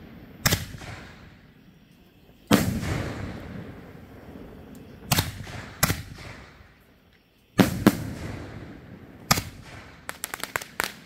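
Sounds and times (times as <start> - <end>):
firework shells banging: 9.2 - 11.0.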